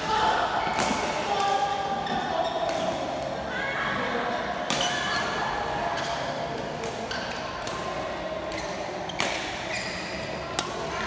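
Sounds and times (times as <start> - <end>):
rackets hitting shuttlecock: 0.7 - 3.3, 6.0 - 11.0
shoes squeaking on court floor: 2.0 - 2.9, 8.5 - 10.4.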